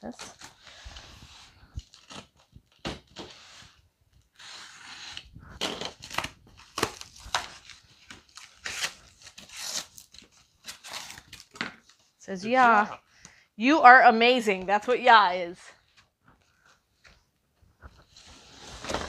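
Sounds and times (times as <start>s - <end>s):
cardboard tearing: 4.3s - 11.6s.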